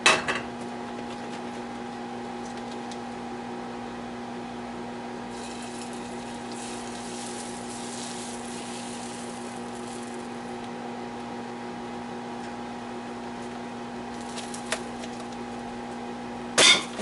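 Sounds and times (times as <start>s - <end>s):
steady hum: 0.0s - 17.0s
liquid hissing in hot pan: 5.3s - 10.4s.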